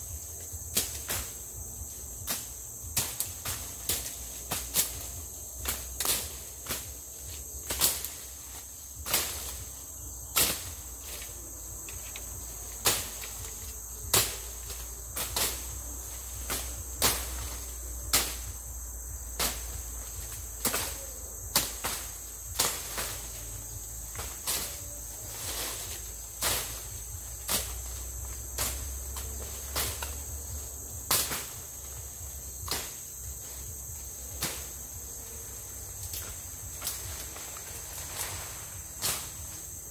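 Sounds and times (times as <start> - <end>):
insects droning: 0.0 - 39.9
machete chopping undergrowth: 0.4 - 18.6, 19.3 - 39.9.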